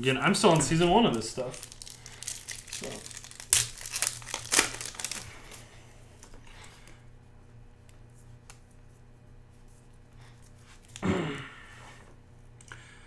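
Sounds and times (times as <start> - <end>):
card stack handling: 0.4 - 5.6
foil wrapper crinkling: 0.4 - 5.6.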